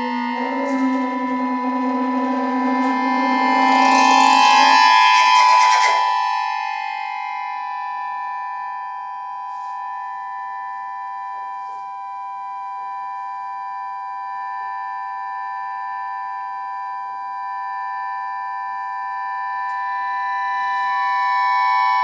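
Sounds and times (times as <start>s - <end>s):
accordion sustained chord drone: 0.0s - 8.4s.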